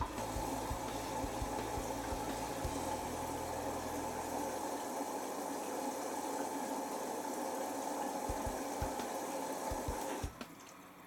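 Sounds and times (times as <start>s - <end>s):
low hum: 0.0s - 4.6s
washing machine sloshing and tumbling: 0.0s - 11.0s.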